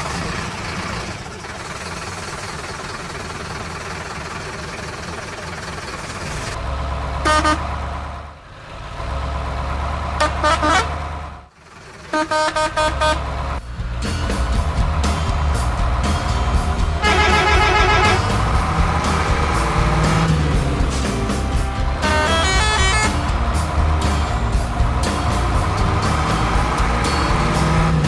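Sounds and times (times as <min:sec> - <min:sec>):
truck engine rumbling: 0:00.0 - 0:28.0
truck horn tooting: 0:07.2 - 0:07.8, 0:10.2 - 0:11.1, 0:12.0 - 0:13.4, 0:17.0 - 0:18.6, 0:22.0 - 0:23.4.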